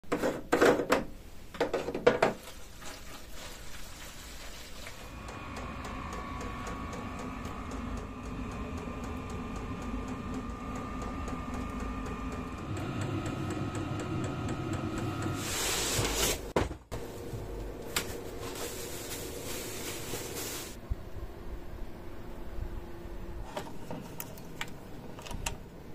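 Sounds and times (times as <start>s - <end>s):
rustling: 2.4s - 5.1s, 15.4s - 20.8s
heater fan hum: 4.9s - 25.9s.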